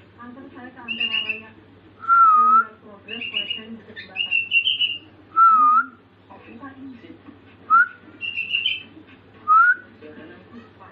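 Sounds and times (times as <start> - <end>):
bird chirping: 0.8 - 1.6, 3.0 - 5.1, 8.1 - 9.0.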